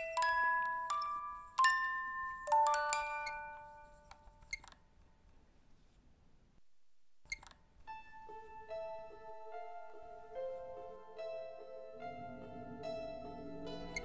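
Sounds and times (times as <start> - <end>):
chime-like mallet notes: 0.0 - 4.1, 8.3 - 14.0.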